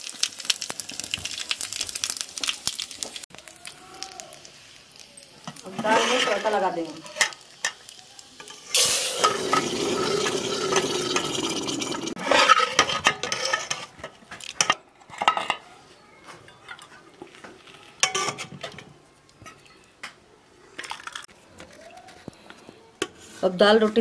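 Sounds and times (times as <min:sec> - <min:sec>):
hot oil sizzling: 0:00.0 - 0:12.5.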